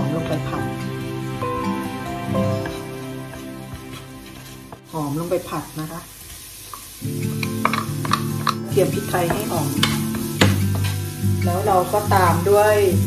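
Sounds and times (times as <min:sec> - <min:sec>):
background music: 0:00.0 - 0:06.2, 0:06.8 - 0:13.0
mushrooms sizzling in oil: 0:00.0 - 0:13.0
wooden spatula scraping pan: 0:00.4 - 0:05.5.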